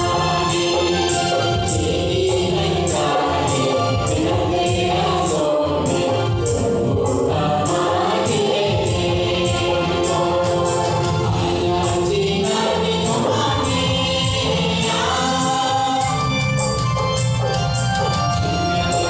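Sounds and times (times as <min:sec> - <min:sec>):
choir singing devotional song: 0:00.0 - 0:16.8
high jingling percussion beat: 0:00.0 - 0:19.0.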